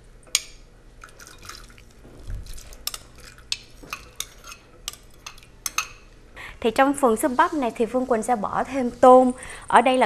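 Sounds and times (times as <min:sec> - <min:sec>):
metal ladle scraping glass bowl: 0:02.5 - 0:05.4.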